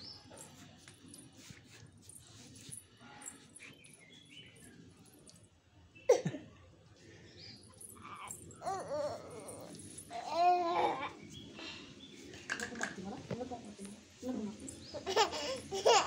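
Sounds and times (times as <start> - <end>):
pet animal whining: 8.0 - 10.3.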